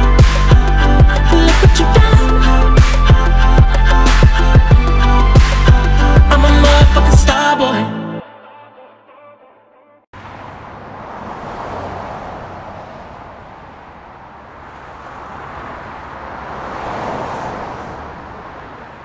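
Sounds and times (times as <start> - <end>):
cars passing: 10.1 - 19.0.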